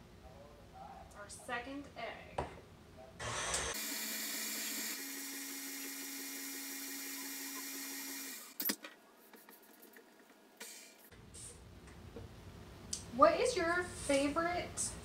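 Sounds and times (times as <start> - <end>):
electric stand mixer running: 3.2 - 8.6.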